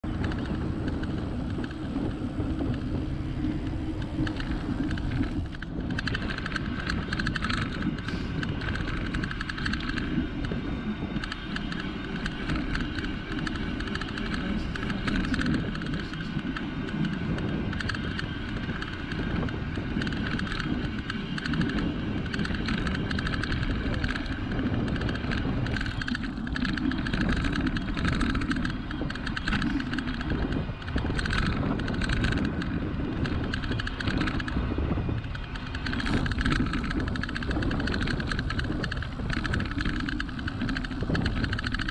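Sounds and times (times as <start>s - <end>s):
bike rattling: 0.0s - 41.9s
bike tyres rolling on asphalt: 0.0s - 41.9s.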